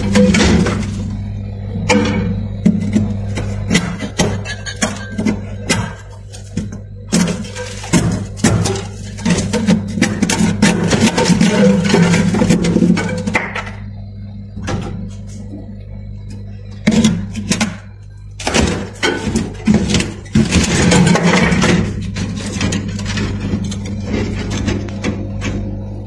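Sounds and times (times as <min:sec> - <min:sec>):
low hum: 0:00.0 - 0:26.0
frost scraping and cracking: 0:03.0 - 0:13.0.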